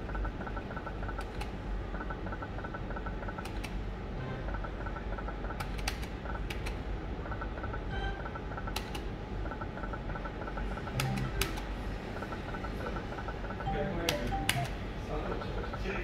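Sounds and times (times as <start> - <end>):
steady low hum: 0.0 - 16.0
sharp clicks: 10.9 - 11.7, 14.0 - 14.8
rapid electronic beeps: 13.5 - 14.8.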